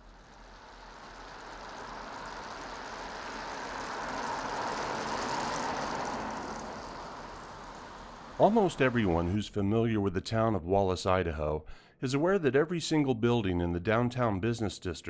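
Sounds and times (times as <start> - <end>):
motor vehicle passing by: 0.0 - 9.6.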